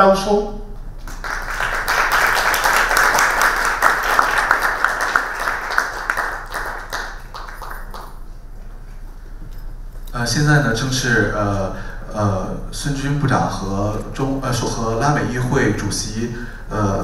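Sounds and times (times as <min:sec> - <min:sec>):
audience applauding: 0:01.0 - 0:08.3.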